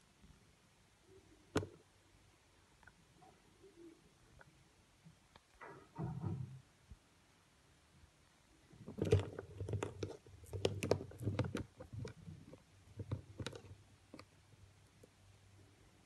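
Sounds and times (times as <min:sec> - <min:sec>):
tarantula clicking and tapping on plastic: 0:08.8 - 0:14.4.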